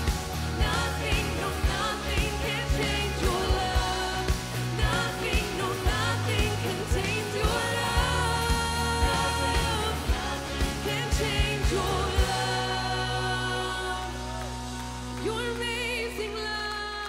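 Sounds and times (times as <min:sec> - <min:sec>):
steady drum beat: 0:00.0 - 0:13.0
voices singing: 0:00.0 - 0:14.6
electric and acoustic guitars: 0:00.0 - 0:16.0.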